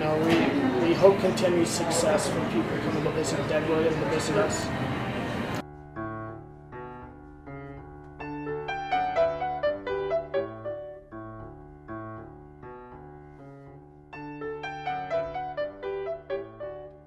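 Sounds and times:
slow piano melody: 0:00.0 - 0:17.0.

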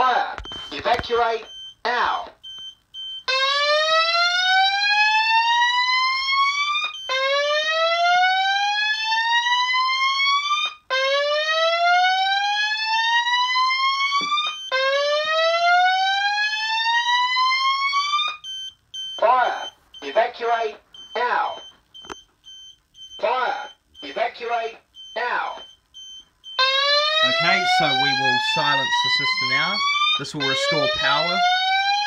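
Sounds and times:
fire alarm whooping: 0:02.5 - 0:24.2, 0:25.0 - 0:32.0
short beeps: 0:25.0 - 0:26.6.

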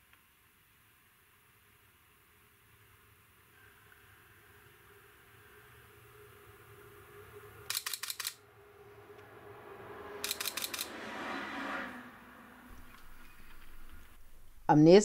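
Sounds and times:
camera shutter clicking: 0:07.7 - 0:08.4, 0:10.2 - 0:10.9.

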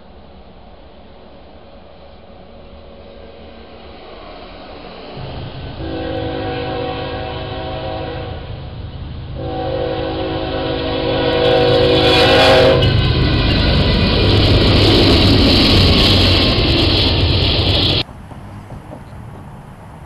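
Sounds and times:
diesel locomotives passing: 0:00.0 - 0:20.0
locomotive air horn: 0:05.2 - 0:08.7, 0:09.4 - 0:13.4
wheel clatter on rails: 0:12.8 - 0:20.0.

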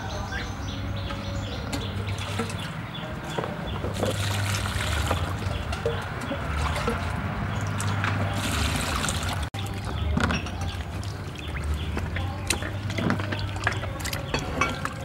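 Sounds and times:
hands splashing water in basin: 0:03.8 - 0:10.0.

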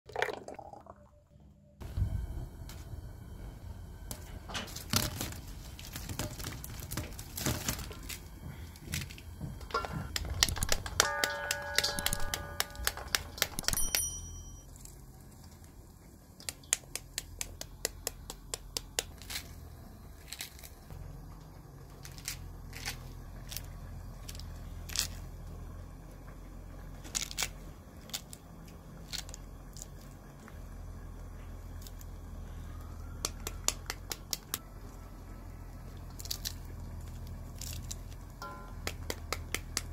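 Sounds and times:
seeds clicking into metal bowl: 0:10.1 - 0:14.0
fruit rind tearing and crackling: 0:16.4 - 0:20.9, 0:21.8 - 0:25.6, 0:26.9 - 0:30.5, 0:35.9 - 0:39.9.

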